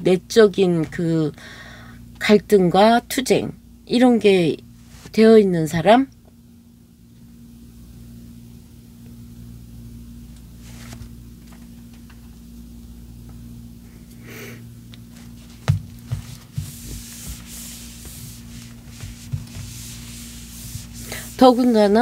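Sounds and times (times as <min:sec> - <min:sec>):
steady low hum: 0:00.0 - 0:22.0
rubbing strokes on whiteboard: 0:16.1 - 0:22.0.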